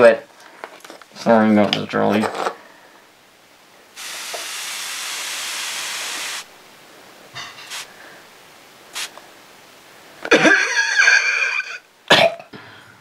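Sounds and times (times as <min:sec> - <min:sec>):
spray bottle hissing: 0:04.0 - 0:06.5, 0:07.6 - 0:07.9, 0:08.9 - 0:09.2
high squealing cry: 0:10.8 - 0:11.8.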